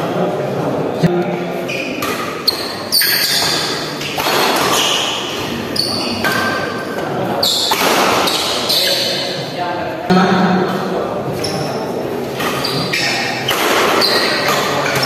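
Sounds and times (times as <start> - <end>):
shoes squeaking on court floor: 1.6 - 9.4, 11.3 - 15.0
rackets striking shuttlecock: 2.0 - 5.4, 12.3 - 15.0.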